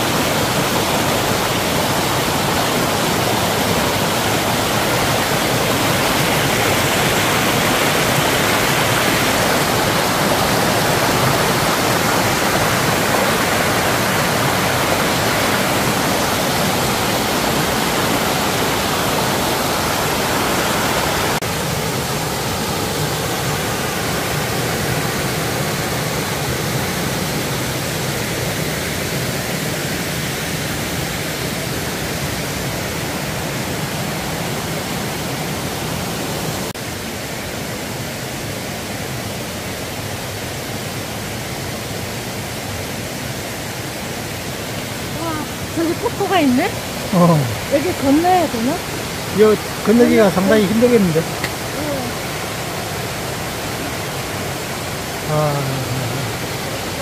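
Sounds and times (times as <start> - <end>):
mountain stream rushing: 0.0 - 57.0.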